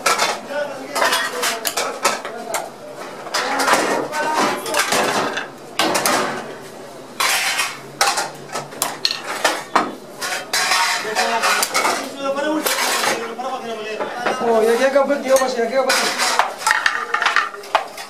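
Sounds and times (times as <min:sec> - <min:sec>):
metal spoon scraping steel pan: 0:10.2 - 0:11.8.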